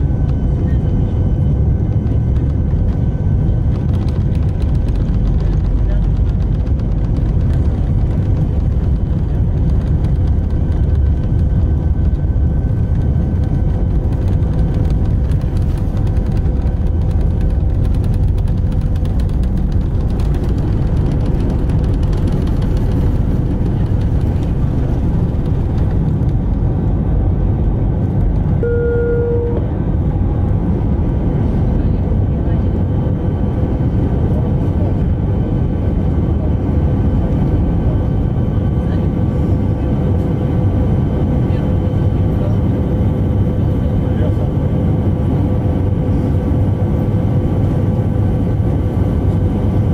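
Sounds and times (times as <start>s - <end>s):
jet engines roaring in cabin: 0.0s - 49.9s
short beep: 28.6s - 29.7s.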